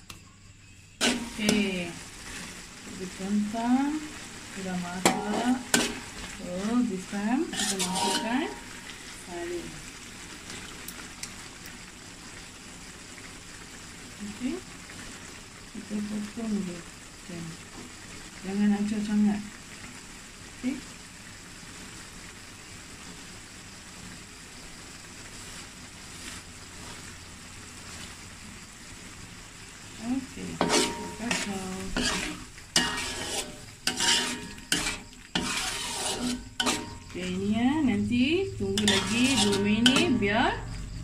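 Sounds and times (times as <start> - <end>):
curry sizzling in a wok: 0.0 - 41.0
metal spatula scraping a pan: 1.0 - 9.3, 30.4 - 37.4, 38.6 - 40.4.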